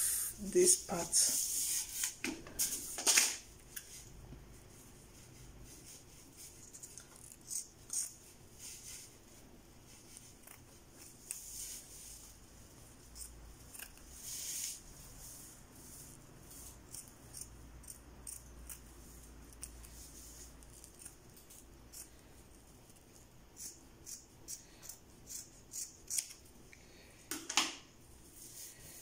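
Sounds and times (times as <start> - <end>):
rustling of wig hair: 0.2 - 7.5, 8.1 - 13.0, 28.1 - 29.0.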